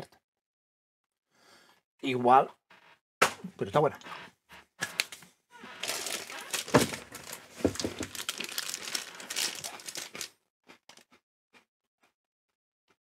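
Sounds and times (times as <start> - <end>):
plastic packet crinkling: 5.8 - 10.3.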